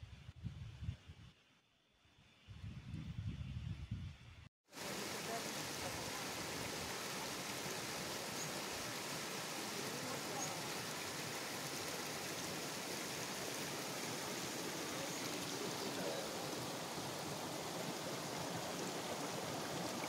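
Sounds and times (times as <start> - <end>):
waterfall rushing over rocks: 4.8 - 20.0.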